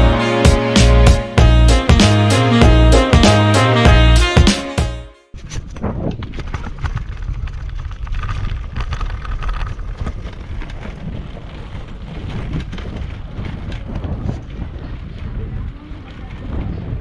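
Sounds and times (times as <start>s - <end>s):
heavy low rumble: 0.0s - 4.3s
wind buffeting microphone: 5.4s - 17.0s.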